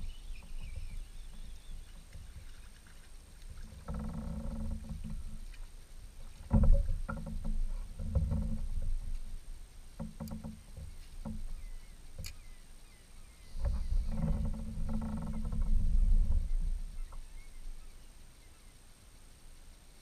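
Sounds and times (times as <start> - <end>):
water slapping plastic hull: 0.6 - 9.3.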